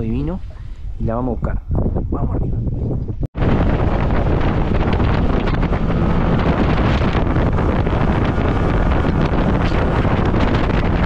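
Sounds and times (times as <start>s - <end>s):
wind rushing over microphone: 0.0s - 11.0s
water noise: 2.7s - 11.0s
outboard motor: 3.4s - 11.0s.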